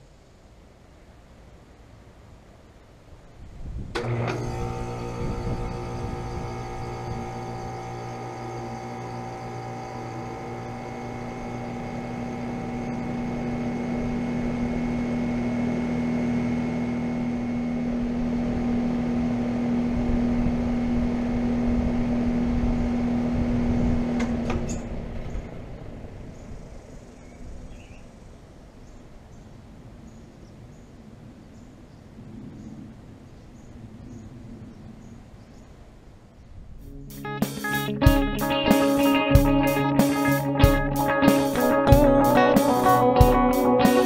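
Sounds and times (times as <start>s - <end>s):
air conditioner compressor hum: 4.0s - 24.2s.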